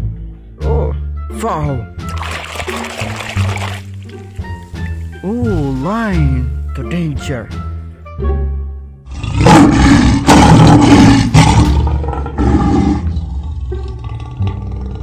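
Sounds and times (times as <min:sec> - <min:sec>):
lion roaring: 0:09.1 - 0:15.0.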